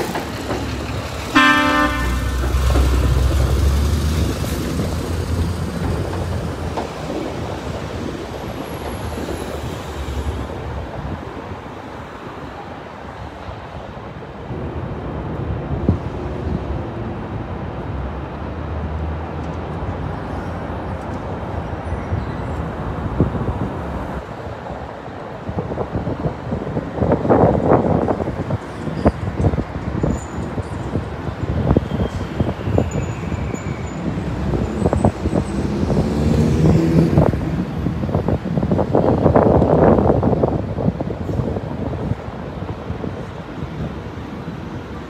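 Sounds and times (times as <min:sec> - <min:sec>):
truck engine rumbling: 0:00.0 - 0:07.8
steady traffic hum: 0:00.0 - 0:45.0
vehicle passing: 0:01.2 - 0:06.5, 0:34.4 - 0:38.2.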